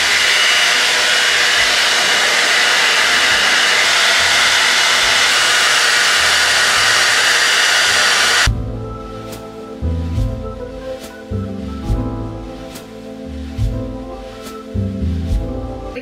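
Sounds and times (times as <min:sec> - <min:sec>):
hair dryer blowing: 0:00.0 - 0:08.5.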